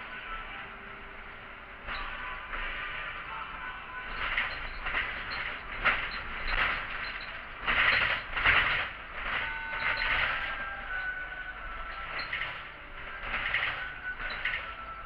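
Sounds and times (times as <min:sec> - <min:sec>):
bus engine and rattling: 0:00.0 - 0:15.0.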